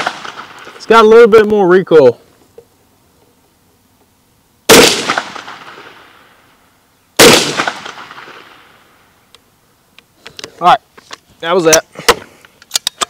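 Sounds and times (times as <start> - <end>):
gunshots with long echo: 0.0 - 0.8, 4.7 - 6.4, 7.2 - 9.0.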